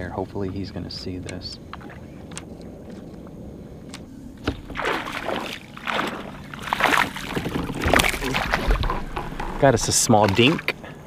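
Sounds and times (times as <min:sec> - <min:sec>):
fish splashing in water: 0:04.5 - 0:09.2.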